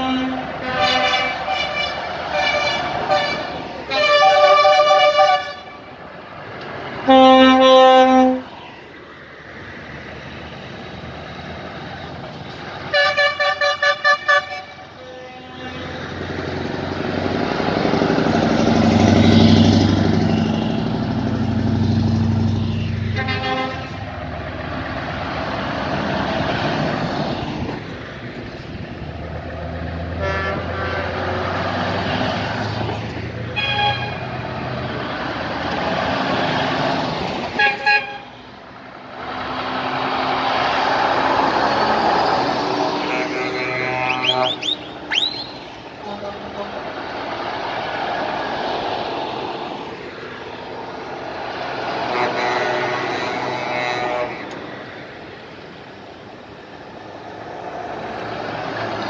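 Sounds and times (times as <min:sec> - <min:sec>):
truck horns blasting: 0:00.0 - 0:06.0, 0:07.0 - 0:08.6, 0:12.8 - 0:16.4, 0:22.6 - 0:24.4, 0:30.1 - 0:32.3, 0:33.4 - 0:34.6, 0:37.5 - 0:38.6, 0:42.5 - 0:47.1, 0:51.8 - 0:54.9
truck diesel engine passing: 0:00.0 - 0:59.0.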